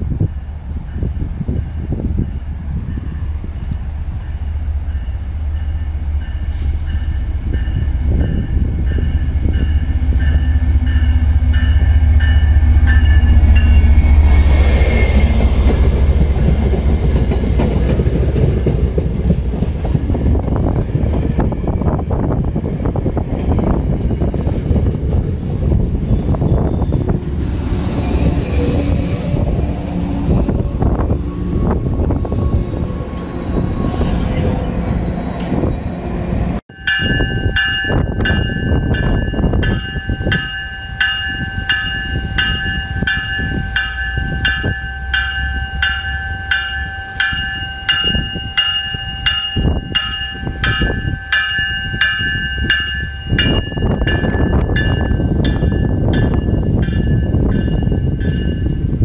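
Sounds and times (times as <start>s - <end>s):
train rolling: 0.0s - 59.0s
wind buffeting microphone: 0.0s - 59.0s
train bell ringing: 4.3s - 15.2s, 36.7s - 59.0s
train wheels squealing: 23.5s - 36.4s.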